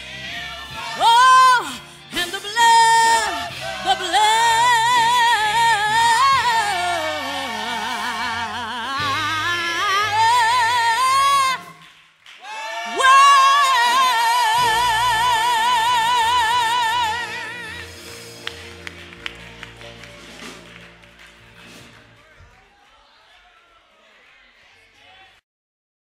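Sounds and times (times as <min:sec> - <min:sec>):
woman singing gospel with vibrato: 0:00.0 - 0:18.4.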